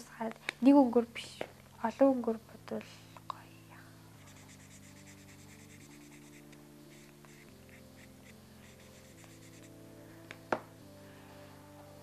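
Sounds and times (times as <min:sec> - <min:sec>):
faint background music: 0:00.0 - 0:12.0
marker scratching on wood: 0:04.2 - 0:09.7.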